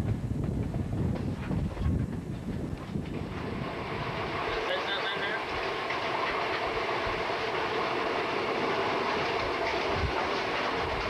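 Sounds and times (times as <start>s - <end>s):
train wheels on rails: 0.0s - 11.0s.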